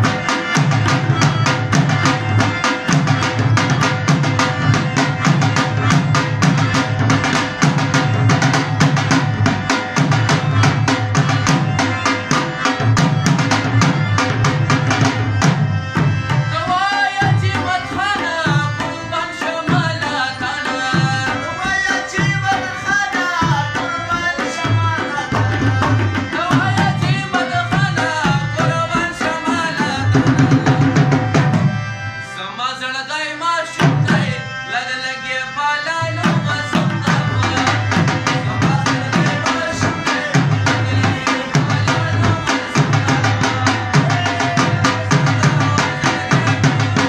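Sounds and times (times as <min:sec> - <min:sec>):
tabla and dhol drumming: 0:00.0 - 0:32.2, 0:33.6 - 0:35.0, 0:35.8 - 0:47.0
harmonium: 0:00.0 - 0:47.0
man singing: 0:16.0 - 0:47.0.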